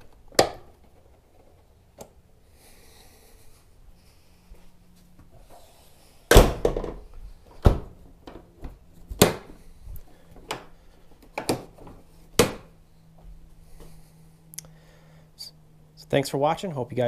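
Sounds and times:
hard knocks and thuds: 6.3s - 8.0s.

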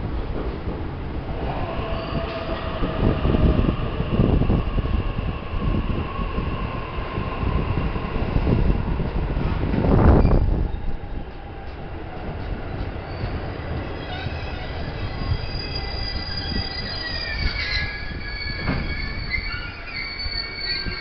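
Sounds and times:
train rumbling past: 0.0s - 21.0s
wheel squeals: 13.1s - 21.0s.

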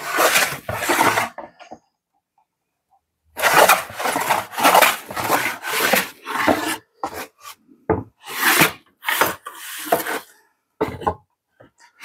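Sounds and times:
hand plane shaving wood: 0.0s - 1.5s, 3.4s - 7.6s, 8.2s - 10.3s.

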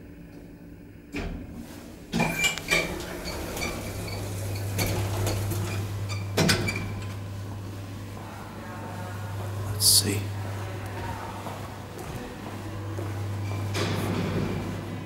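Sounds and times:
low steady hum: 0.0s - 15.0s
elevator doors sliding open: 1.2s - 15.0s
elevator thud: 13.3s - 15.0s.

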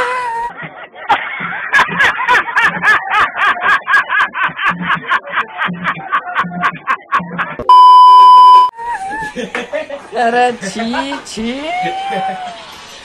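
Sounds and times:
man laughing hard: 0.6s - 7.6s.

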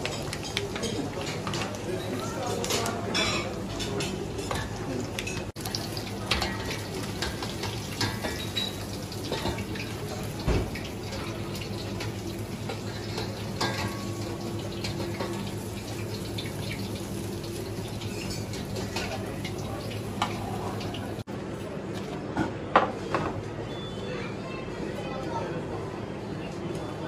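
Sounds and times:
food deep-frying in hot oil: 3.6s - 21.3s.

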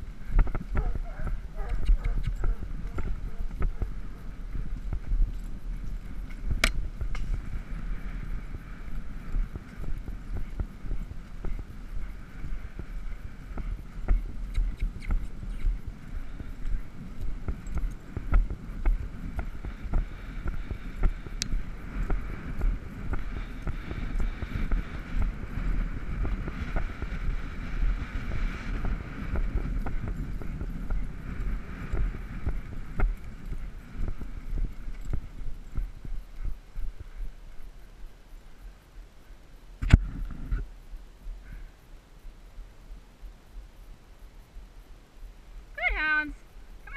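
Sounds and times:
wind buffeting microphone: 0.0s - 38.3s, 39.8s - 41.7s
horse hoofbeats on grass: 0.0s - 38.8s
faint hiss: 0.0s - 46.9s.

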